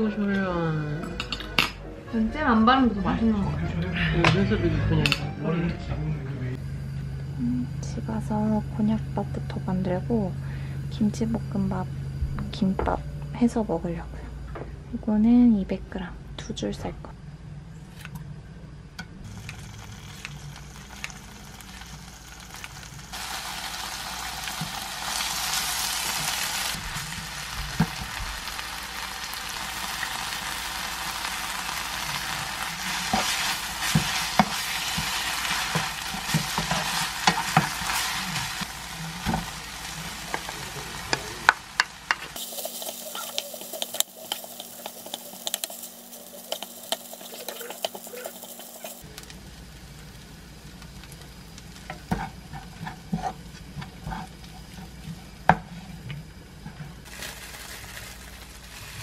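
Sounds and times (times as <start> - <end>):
food sizzling in a frying pan: 19.2 - 55.8, 57.0 - 59.0
spatula scraping and tapping pan: 41.8 - 49.0, 51.9 - 55.8.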